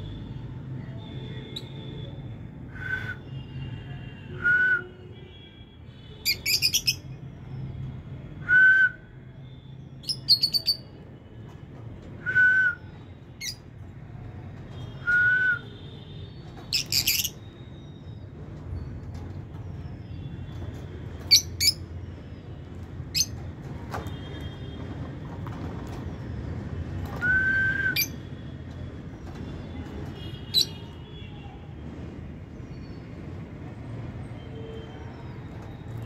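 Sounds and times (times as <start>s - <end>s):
whistled bird notes: 27.2s - 28.2s.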